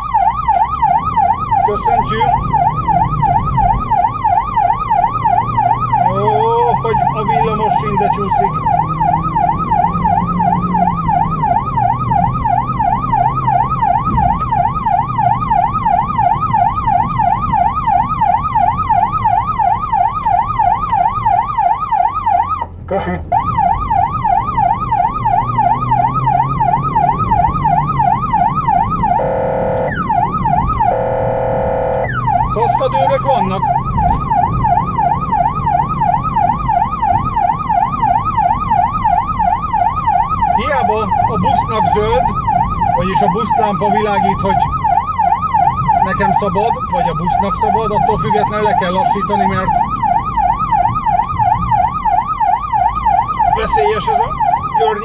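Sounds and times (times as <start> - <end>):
emergency siren yelping: 0.0 - 55.0
engine and road noise: 0.0 - 55.0
car horn blasts: 29.1 - 30.0, 30.9 - 32.1.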